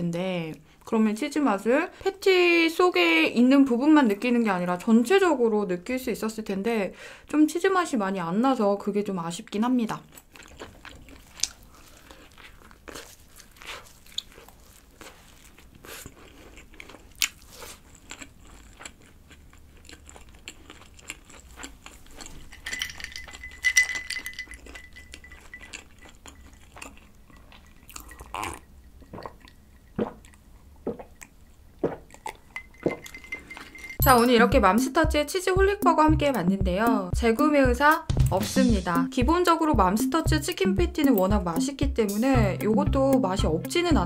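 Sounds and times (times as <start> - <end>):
crunchy chewing: 9.9 - 23.6, 24.4 - 32.6
wet mouth sounds: 25.5 - 33.2
swallowing: 26.3 - 33.2
drinking from a glass: 27.9 - 34.0.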